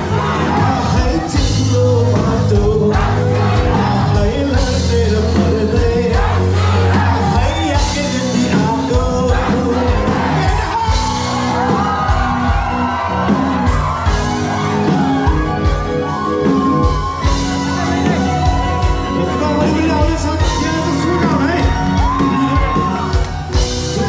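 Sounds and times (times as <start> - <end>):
crowd shouting along: 0.0 - 4.7, 5.7 - 24.0
lead singer: 0.0 - 24.0
live band playing: 0.0 - 24.0.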